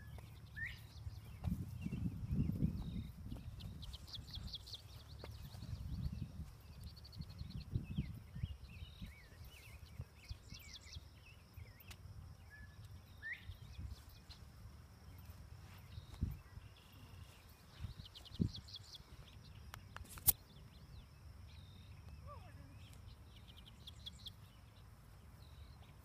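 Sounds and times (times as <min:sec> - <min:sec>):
wind rumbling on microphone: 0:00.0 - 0:11.4, 0:13.0 - 0:14.3, 0:15.6 - 0:20.2
birds chirping and calling: 0:00.0 - 0:26.0
sharp click: 0:19.7 - 0:20.4.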